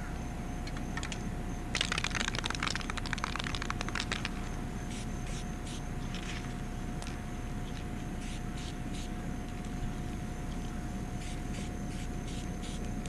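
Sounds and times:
tiny beads pattering on concrete: 0:01.0 - 0:04.4.

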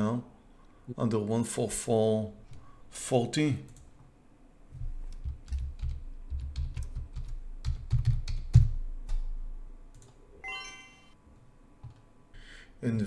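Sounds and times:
typing on keyboard: 0:05.1 - 0:09.3.

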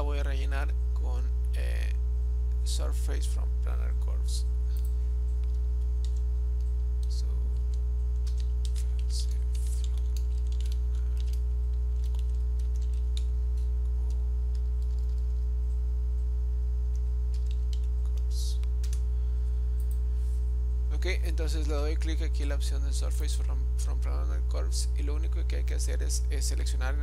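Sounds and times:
electrical mains hum: 0:00.0 - 0:27.0
keyboard typing: 0:04.7 - 0:15.5, 0:16.9 - 0:19.0.

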